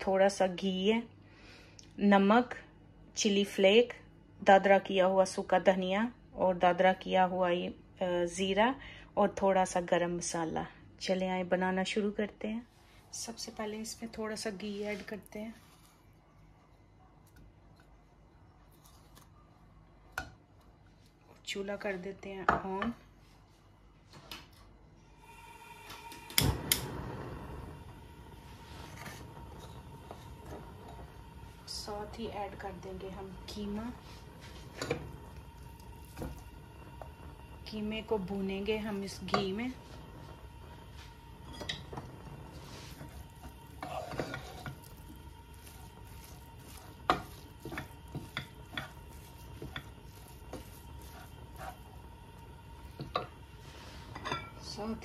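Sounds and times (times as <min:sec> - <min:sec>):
burner flame rushing: 0:25.3 - 0:54.2
gas stove igniter clicks: 0:25.9 - 0:27.0
spoon knocking and scraping pan: 0:34.4 - 0:35.2, 0:41.4 - 0:52.0, 0:52.8 - 0:53.4, 0:54.0 - 0:54.8
spoon stirring minced meat: 0:41.0 - 0:54.1.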